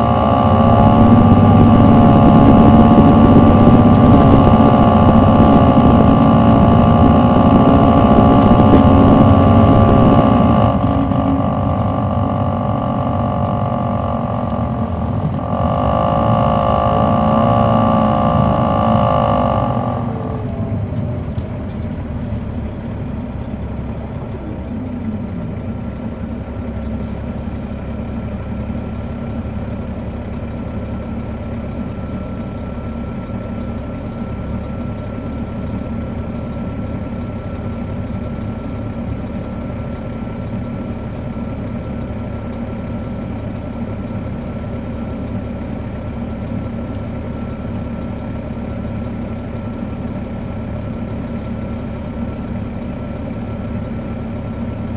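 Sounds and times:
brief falling tone: 0.0s - 21.2s
faint high whine: 0.0s - 21.8s
diesel bus engine running: 0.0s - 54.9s.

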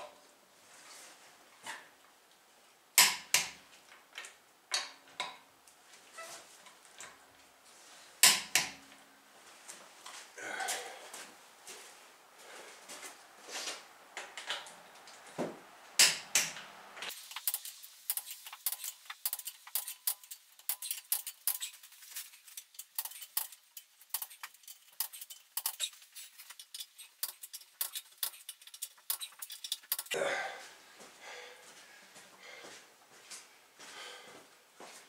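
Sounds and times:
metal hand tools clinking: 17.5s - 30.1s.

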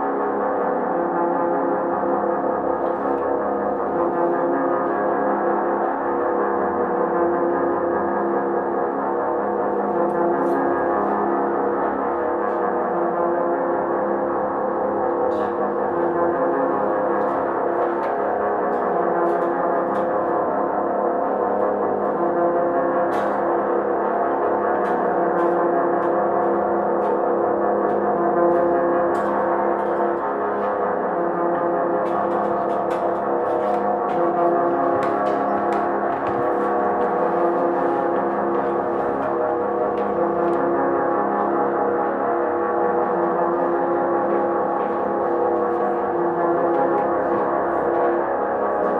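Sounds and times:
droning ambient music: 0.0s - 48.9s.

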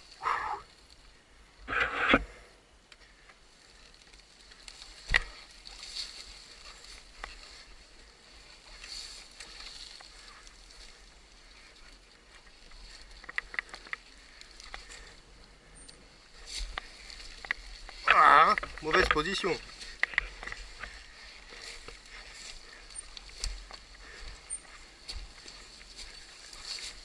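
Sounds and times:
small clicks: 12.8s - 15.0s.

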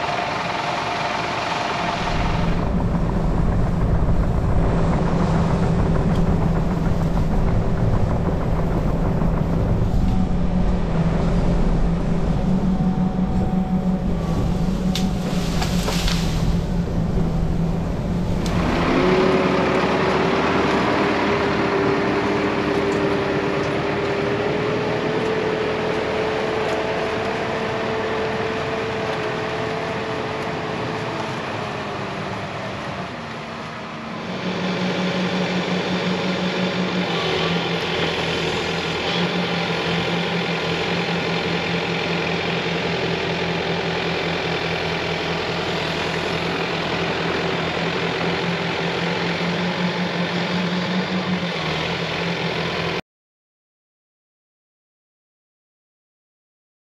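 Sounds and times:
high whine: 0.0s - 29.2s
diesel engine running: 0.0s - 53.0s.

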